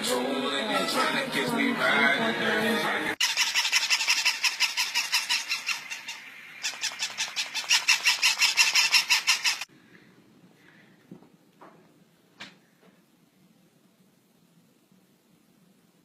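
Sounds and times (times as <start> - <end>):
toy puppies yapping electronically: 3.2 - 9.7.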